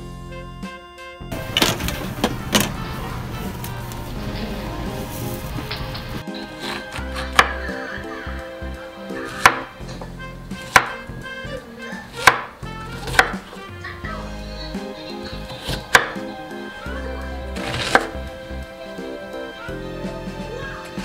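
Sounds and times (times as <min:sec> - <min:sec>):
soft background music: 0:00.0 - 0:21.0
knife knocking on cutting board: 0:07.4 - 0:07.6, 0:09.4 - 0:09.7, 0:10.6 - 0:11.0, 0:12.2 - 0:13.4.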